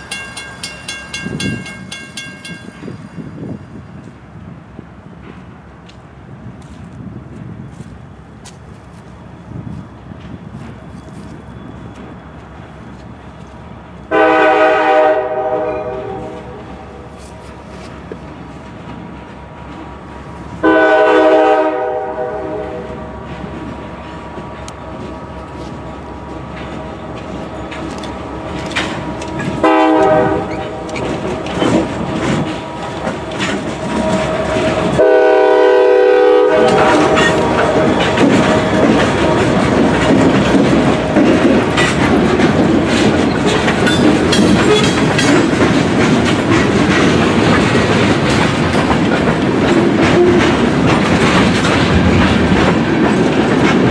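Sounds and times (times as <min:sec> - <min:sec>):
diesel locomotive rumble: 0:00.0 - 0:53.9
locomotive air horn blasts: 0:14.1 - 0:17.1, 0:20.6 - 0:23.1, 0:29.6 - 0:30.9, 0:33.9 - 0:38.0
freight car wheels clickety-clack: 0:26.3 - 0:35.0, 0:36.6 - 0:53.9.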